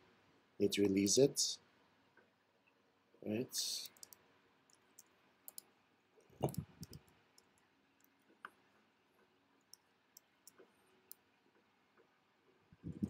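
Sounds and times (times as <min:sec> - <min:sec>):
mouse and keyboard clicks: 0:03.8 - 0:05.7, 0:06.4 - 0:08.6.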